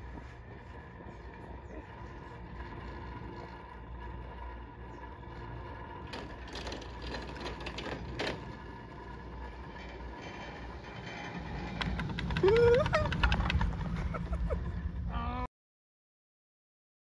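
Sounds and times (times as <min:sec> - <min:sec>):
chairlift mechanical hum: 0:00.0 - 0:15.5
chair grip rattling over sheaves: 0:06.0 - 0:08.8.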